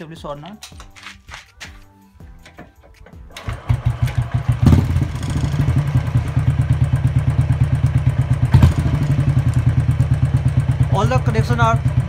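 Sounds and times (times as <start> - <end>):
motorcycle engine idling: 2.4 - 12.0
engine knock: 3.3 - 12.0.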